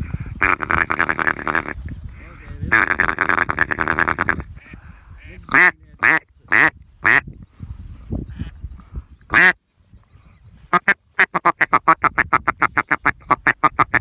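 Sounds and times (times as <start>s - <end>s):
duck call quacks: 0.4s - 1.8s, 2.7s - 4.5s, 5.2s - 7.2s, 9.3s - 9.6s, 10.7s - 14.0s.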